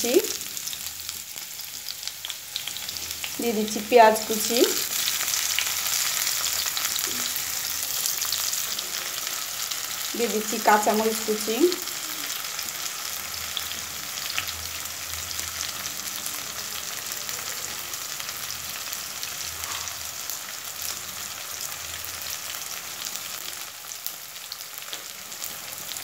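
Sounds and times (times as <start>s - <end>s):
onions sizzling in hot oil: 0.0s - 26.0s.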